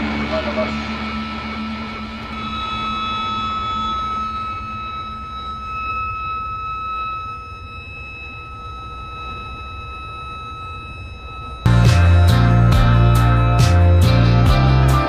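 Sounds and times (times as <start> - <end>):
engine-room machinery rumble: 0.0 - 15.0
steady alarm tone: 0.0 - 15.0
loud music: 11.7 - 15.0.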